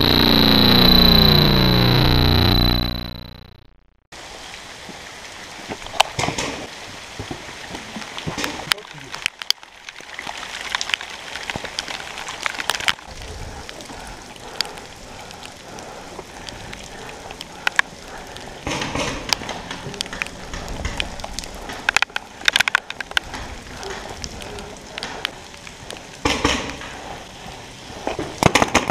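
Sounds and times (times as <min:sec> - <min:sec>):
heavy rain hissing: 0:00.0 - 0:03.2, 0:04.2 - 0:09.3, 0:11.1 - 0:28.8
sharp clicks and cracks: 0:00.0 - 0:04.0, 0:08.2 - 0:27.1, 0:28.0 - 0:28.9.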